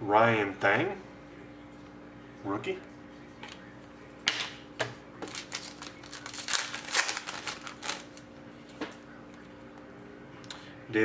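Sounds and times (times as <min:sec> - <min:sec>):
foil packs crinkling: 0:05.2 - 0:08.3.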